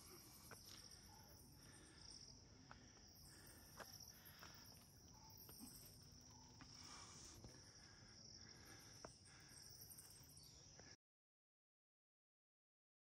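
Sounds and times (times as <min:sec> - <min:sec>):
insects chirring: 0:00.0 - 0:11.0.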